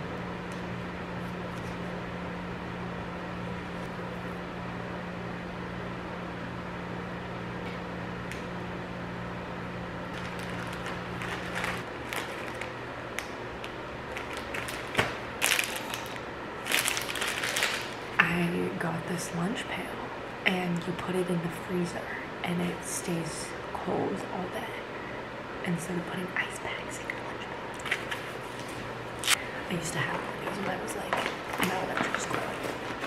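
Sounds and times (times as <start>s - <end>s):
low appliance hum: 0.0s - 33.0s
plastic bag crinkling: 10.1s - 13.3s, 14.1s - 18.2s, 30.4s - 33.0s.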